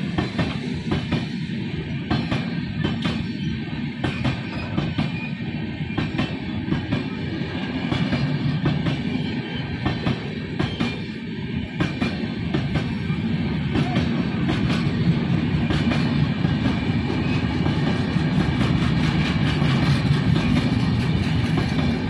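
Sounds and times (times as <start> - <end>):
train wheels clicking over rail joints: 0.0 - 22.0.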